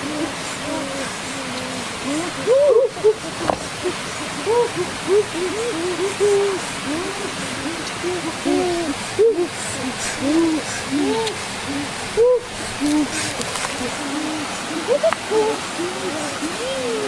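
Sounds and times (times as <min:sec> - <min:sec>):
stream water running: 0:00.0 - 0:17.0.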